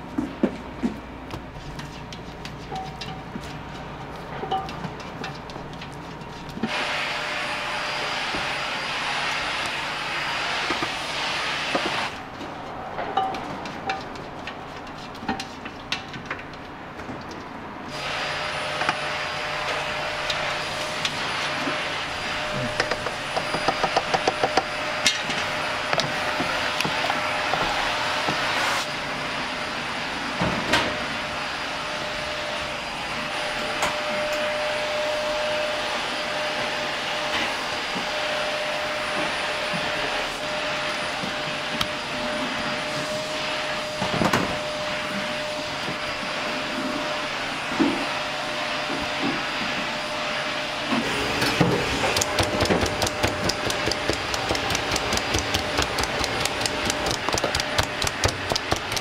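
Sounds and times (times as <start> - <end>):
exhaust ventilation hum: 0.0 - 30.3, 50.8 - 59.0
knocks and utensil clatter: 1.6 - 6.7, 11.8 - 17.5.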